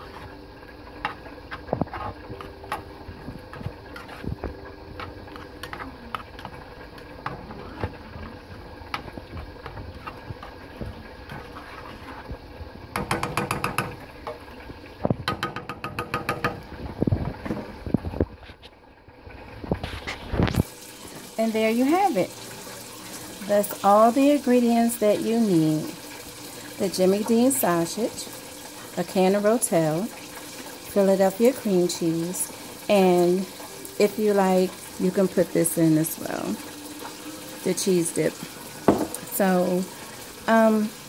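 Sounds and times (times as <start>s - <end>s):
spoon scraping a skillet: 0.0s - 0.4s, 1.0s - 12.4s.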